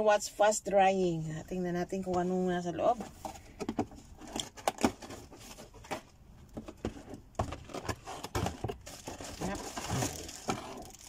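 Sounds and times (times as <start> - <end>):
cardboard box being opened: 6.8 - 11.0.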